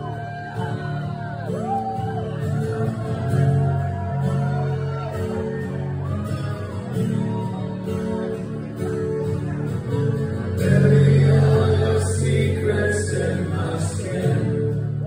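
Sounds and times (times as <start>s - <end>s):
acoustic guitar: 0.0s - 15.0s
man singing: 10.4s - 15.0s.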